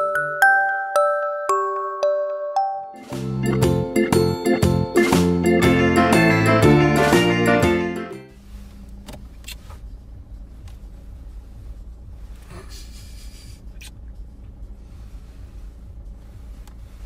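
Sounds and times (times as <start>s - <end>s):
car cabin rumble: 8.3s - 17.0s.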